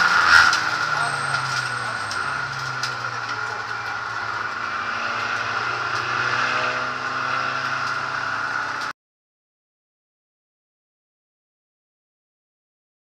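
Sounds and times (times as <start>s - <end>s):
race car engine running: 0.0s - 8.9s
road and cabin noise: 0.0s - 9.0s.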